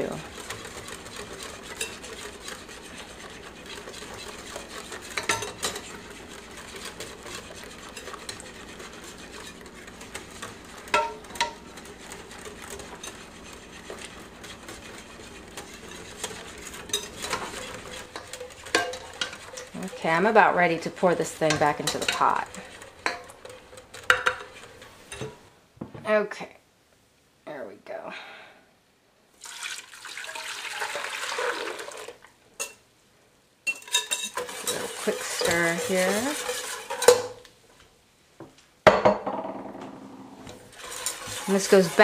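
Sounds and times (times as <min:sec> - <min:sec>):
whisk scraping a glass bowl: 0:00.0 - 0:25.4, 0:33.7 - 0:37.4, 0:40.7 - 0:42.0
whisk clinking on glass: 0:00.4 - 0:19.7, 0:33.7 - 0:37.4.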